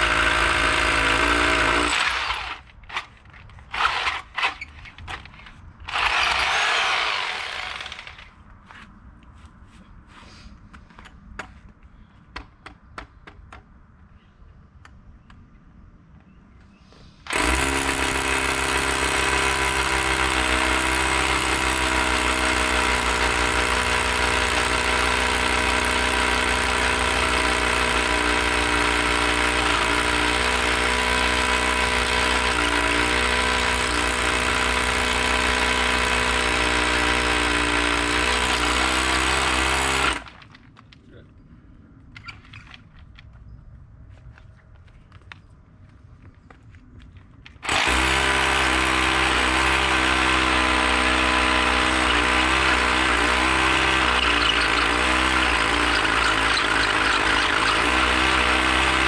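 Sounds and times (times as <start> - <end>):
rotary hammer drilling concrete: 0.0 - 8.4, 17.2 - 40.6, 47.5 - 59.0.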